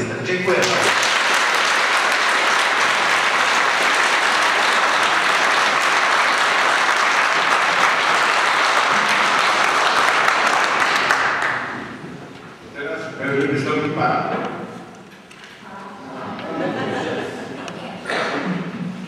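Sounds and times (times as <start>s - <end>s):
audience applauding: 0.5s - 12.0s.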